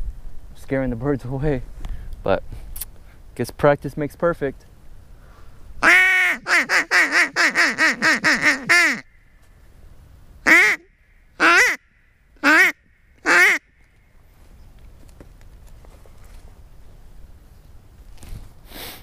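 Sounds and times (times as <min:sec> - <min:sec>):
duck call quacks: 0:05.8 - 0:09.0, 0:10.4 - 0:11.8, 0:12.4 - 0:13.6.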